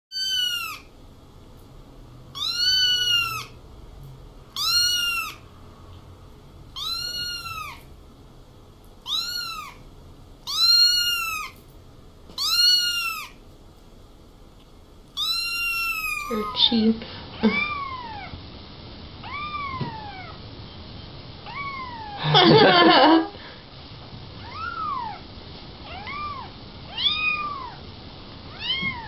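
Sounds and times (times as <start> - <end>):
kitten meowing: 0.1 - 0.9, 2.3 - 3.6, 4.6 - 5.4, 6.8 - 7.9, 9.0 - 9.8, 10.4 - 11.6, 12.4 - 13.4, 15.2 - 16.7, 17.4 - 18.4, 19.2 - 20.4, 21.4 - 22.2, 24.4 - 25.2, 25.8 - 27.8, 28.5 - 29.0.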